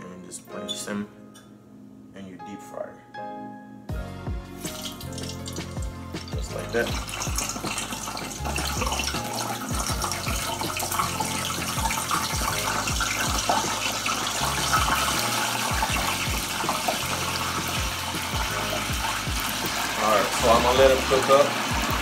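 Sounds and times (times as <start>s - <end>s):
background music with bass thumps: 3.9s - 22.0s
oil sizzling in a deep fryer: 4.6s - 22.0s.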